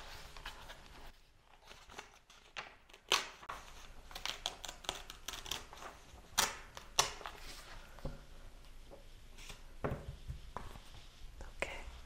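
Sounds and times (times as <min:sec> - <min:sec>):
paper rustling: 0:00.0 - 0:08.0
sharp paper snaps: 0:04.2 - 0:07.4.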